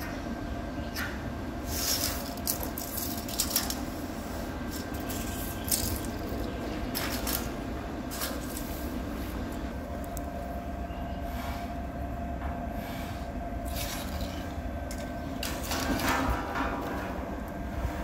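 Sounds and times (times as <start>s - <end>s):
faint hum: 0.0s - 18.0s
low machinery rumble: 0.0s - 18.0s
scratching on gravel: 1.6s - 10.3s.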